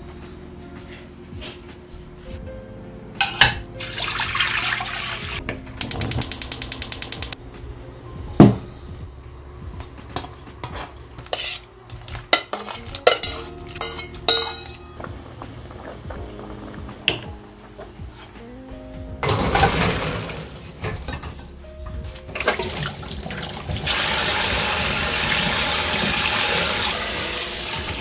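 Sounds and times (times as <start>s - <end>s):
pot and metal utensils clinking: 3.2s - 6.3s, 10.2s - 16.1s, 19.2s - 21.6s, 22.2s - 24.4s
rapid even ticking: 5.8s - 7.4s.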